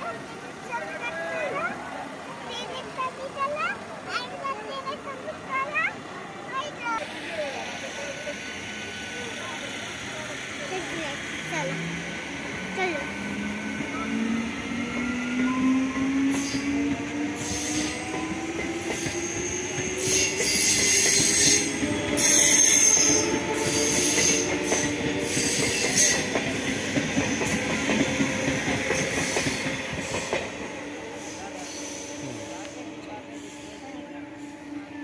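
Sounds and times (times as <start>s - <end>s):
train wheels squealing: 13.2s - 30.5s, 31.1s - 32.6s, 33.2s - 35.0s.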